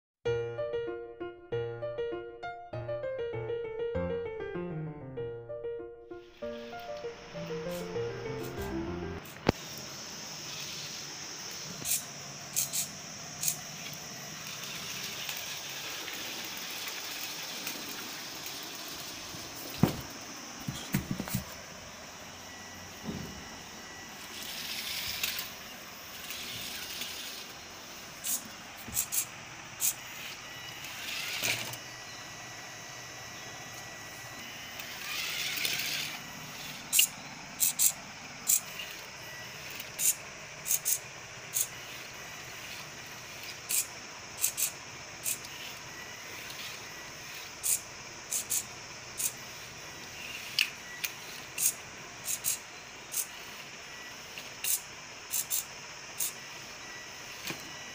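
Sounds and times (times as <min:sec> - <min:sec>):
small gear motors whirring: 0:06.5 - 0:57.9
hiss: 0:09.3 - 0:20.1, 0:40.0 - 0:53.7, 0:54.3 - 0:56.4.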